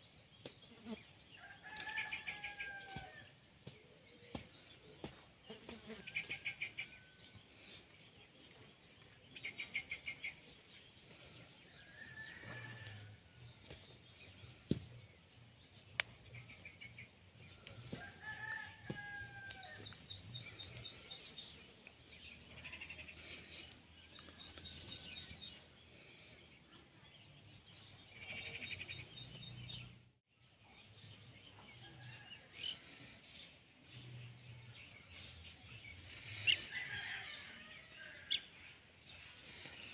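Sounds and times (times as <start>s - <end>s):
birds chirping: 0.0s - 30.1s.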